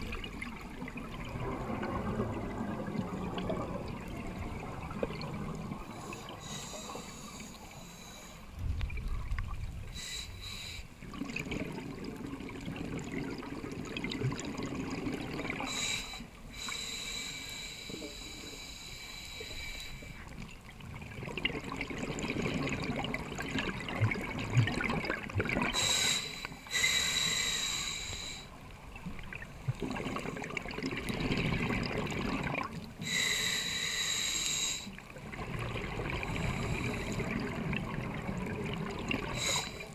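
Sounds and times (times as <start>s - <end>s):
regulator hissing inhalations: 6.0s - 8.5s, 10.0s - 10.9s, 15.7s - 20.2s, 25.8s - 28.6s, 33.0s - 35.0s, 39.3s - 39.9s
bubbling exhalations: 21.2s - 25.9s.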